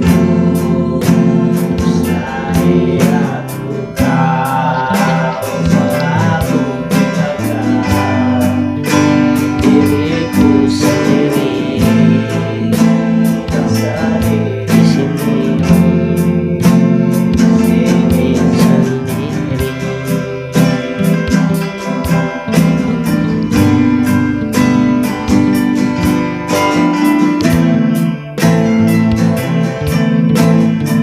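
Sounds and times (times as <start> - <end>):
man singing: 0.0 - 23.6
acoustic guitar strumming: 0.0 - 31.0.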